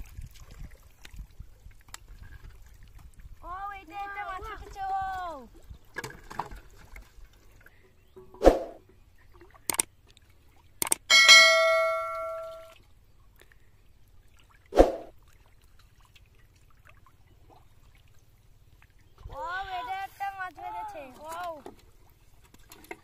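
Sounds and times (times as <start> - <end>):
short swish: 8.4 - 8.8, 14.7 - 15.1
notification bell ding: 11.1 - 12.7.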